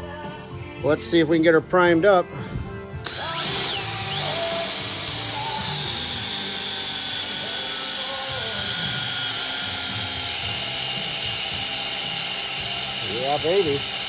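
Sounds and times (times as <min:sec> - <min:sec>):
cordless drill whining: 0:03.0 - 0:14.0.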